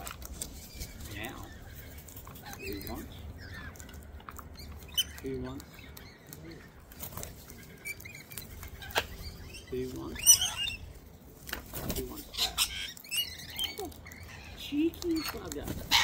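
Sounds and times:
parrot squawking: 0.7 - 11.0, 12.2 - 16.0
wings flapping: 6.3 - 10.2, 10.8 - 13.0, 14.8 - 16.0.

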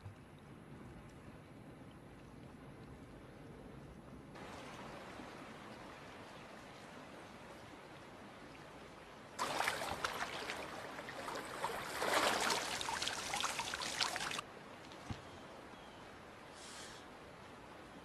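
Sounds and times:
feet wading through water: 9.4 - 14.4.

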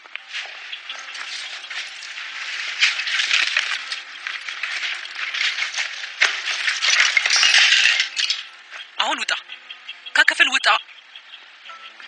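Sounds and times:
pencils rattling and clattering: 0.4 - 8.5.

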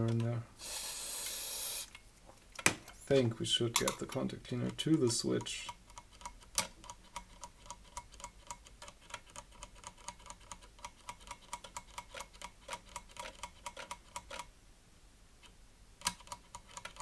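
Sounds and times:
floppy drive ticking: 3.1 - 14.4.

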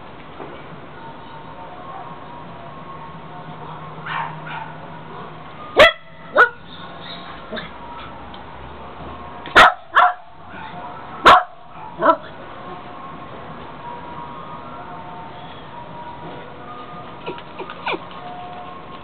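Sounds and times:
small dog barking: 4.0 - 4.8, 5.8 - 6.6, 9.6 - 10.2, 11.2 - 12.2.

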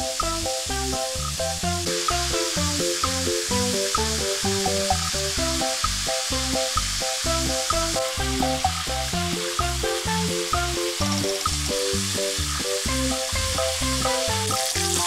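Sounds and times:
background music with bass line: 0.0 - 15.0
chicken sizzling in hot oil: 0.0 - 15.0.

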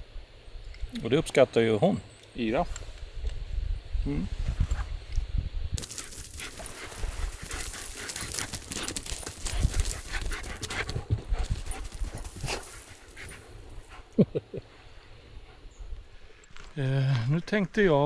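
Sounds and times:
dog panting: 6.3 - 14.2.

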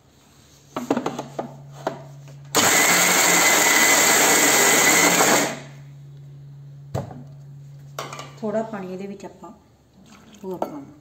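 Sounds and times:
mixer grinder grinding: 2.5 - 5.8.

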